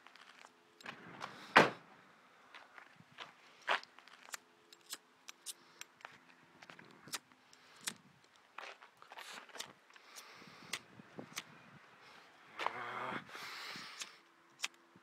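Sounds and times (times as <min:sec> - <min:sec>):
footsteps on gravel: 0:00.0 - 0:01.5, 0:02.5 - 0:04.4, 0:06.0 - 0:07.3, 0:08.3 - 0:10.2.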